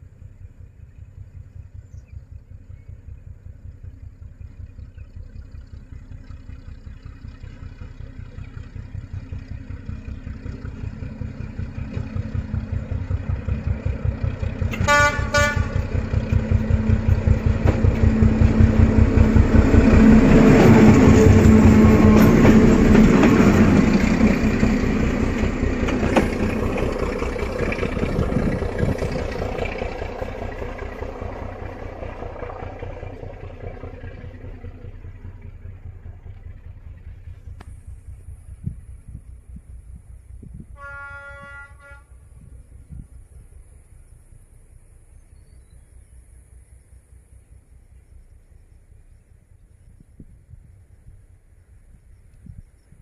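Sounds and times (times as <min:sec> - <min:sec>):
diesel locomotive engines throbbing: 0:00.0 - 0:53.0
locomotive horn toots: 0:14.7 - 0:23.5, 0:40.7 - 0:42.5.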